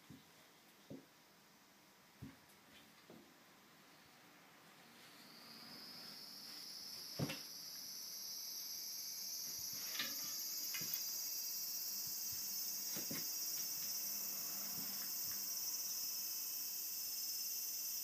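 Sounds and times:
high-pitched insect chorus: 5.0s - 18.0s.

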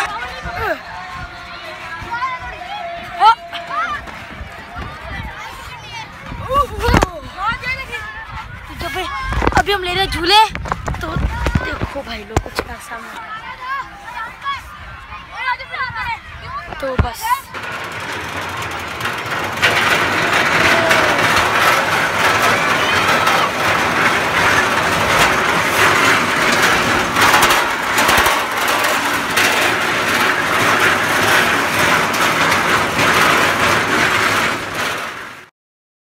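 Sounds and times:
rattles and knocks of cars: 8.7s - 13.1s, 16.5s - 35.5s
ride train rumbling on track: 15.4s - 35.5s.

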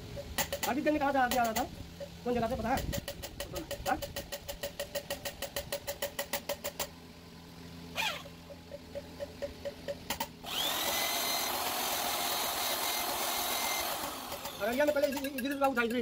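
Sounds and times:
electric grinder whirring: 10.4s - 14.8s
rapid even ticking: 13.8s - 16.0s.

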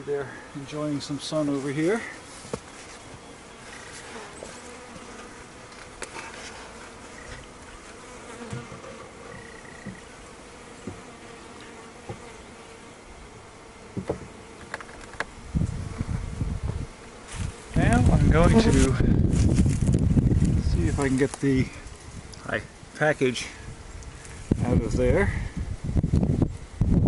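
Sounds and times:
bees buzzing: 0.0s - 26.8s
wooden hive parts knocking: 13.9s - 15.3s.

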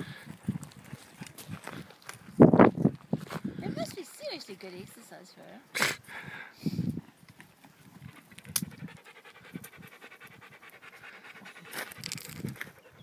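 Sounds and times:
dog panting fast: 8.0s - 13.0s
dog digging in stony soil: 10.7s - 12.9s.

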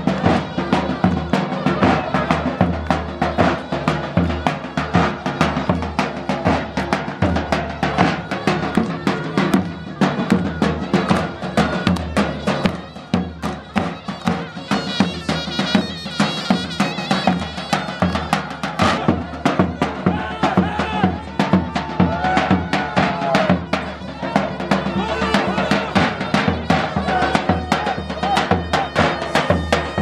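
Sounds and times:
big drum beating rhythm: 0.0s - 30.0s
reedy high wind melody: 7.0s - 19.5s, 20.2s - 30.0s.

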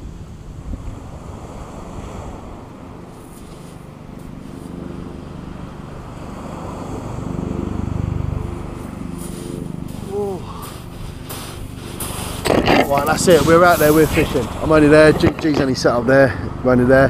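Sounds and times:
wind buffeting microphone: 0.0s - 4.8s, 8.7s - 17.0s
surf on shingle beach: 0.0s - 16.6s
low engine hum: 0.2s - 17.0s.

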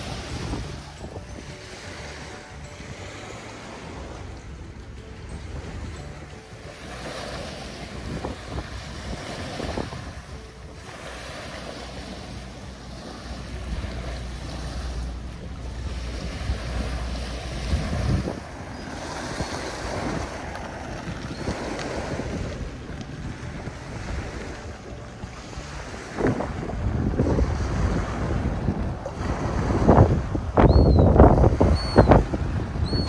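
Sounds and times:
water lapping at shore: 0.0s - 33.0s
wind buffeting microphone: 0.0s - 33.0s.

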